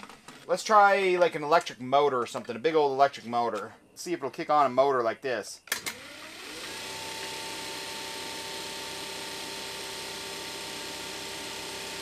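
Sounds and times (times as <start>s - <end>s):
electric motor humming: 5.8s - 12.0s.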